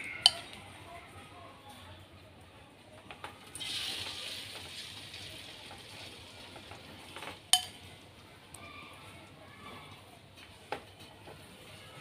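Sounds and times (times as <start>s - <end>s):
greens sizzling in hot oil: 3.6s - 7.7s
ladle clanking on wok: 7.5s - 7.8s.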